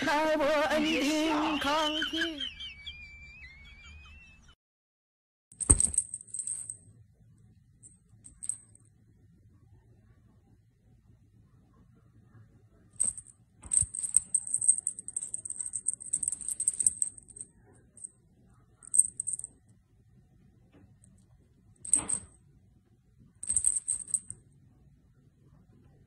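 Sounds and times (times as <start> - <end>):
high metallic jingling: 5.6 - 6.8, 8.3 - 8.8, 13.0 - 18.1, 18.9 - 19.5, 21.9 - 22.3, 23.4 - 24.4.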